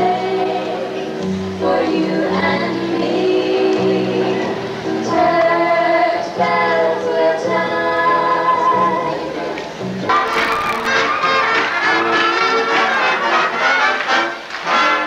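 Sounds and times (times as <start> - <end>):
women singing in harmony: 0.0 - 9.6.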